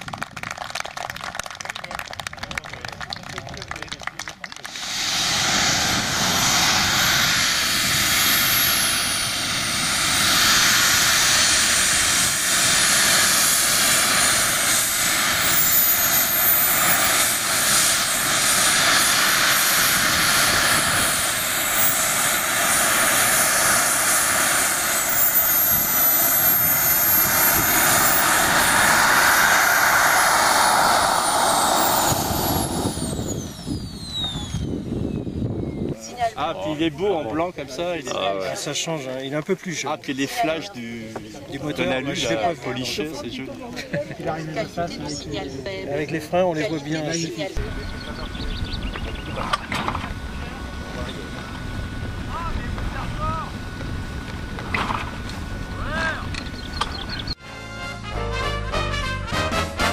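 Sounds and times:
jet turbine rushing with whine: 2.3 - 57.4.

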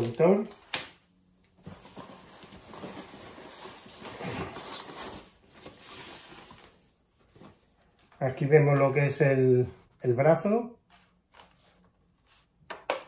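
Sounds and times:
plastic bag rustling: 0.0 - 1.0, 1.6 - 7.8.

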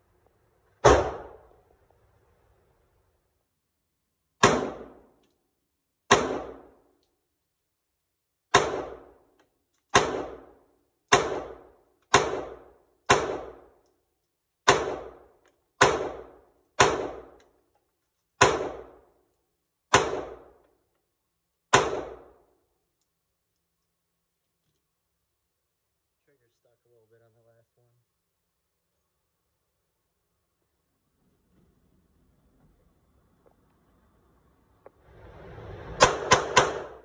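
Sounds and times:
pistol shots echoing indoors: 0.8 - 1.5, 4.4 - 5.2, 6.1 - 7.0, 8.5 - 9.3, 9.9 - 13.9, 14.6 - 17.5, 18.4 - 19.2, 21.7 - 22.7.

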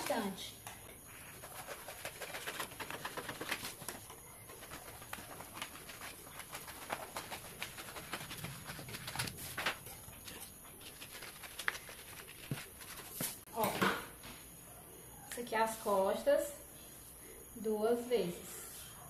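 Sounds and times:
paper rustling: 1.2 - 13.5
scissors snipping paper: 1.5 - 13.4.

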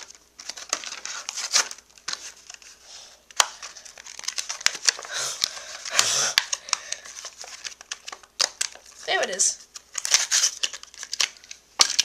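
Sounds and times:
plastic packaging crinkling and tearing: 0.0 - 12.0.

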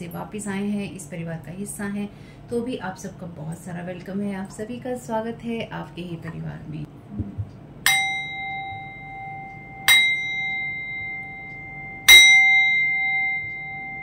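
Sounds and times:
metal singing bowl ringing: 7.8 - 14.0.

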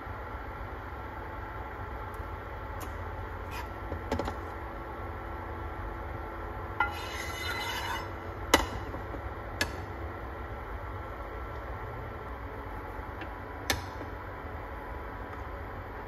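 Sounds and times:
induction cooktop hum and whine: 0.0 - 16.0
spatula scraping frying pan: 6.8 - 8.2.

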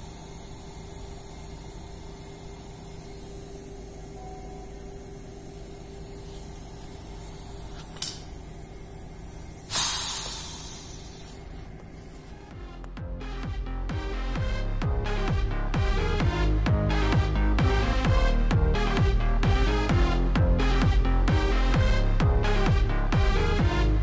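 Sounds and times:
pressurised air hissing from tank: 0.0 - 12.5
steady hum: 0.0 - 24.0.

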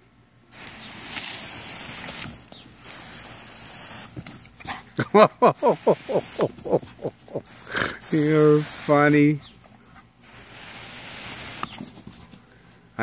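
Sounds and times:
garden hose spraying water: 0.0 - 13.0.

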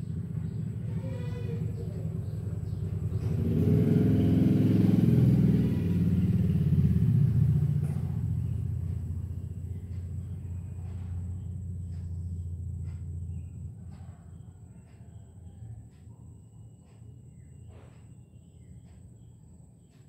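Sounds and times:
vehicle engine passing by: 0.0 - 18.6.

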